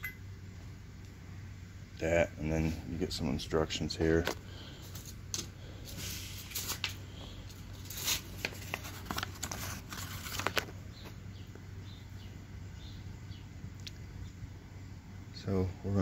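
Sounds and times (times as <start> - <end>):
paper rustling and crinkling: 5.8 - 11.2.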